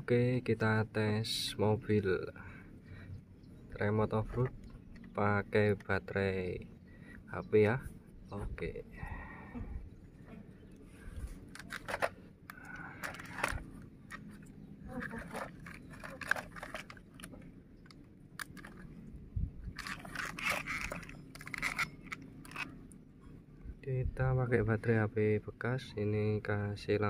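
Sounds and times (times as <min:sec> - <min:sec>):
plastic toy scraping on stones: 0:11.5 - 0:12.2, 0:12.9 - 0:17.4, 0:18.4 - 0:19.0, 0:19.8 - 0:22.8.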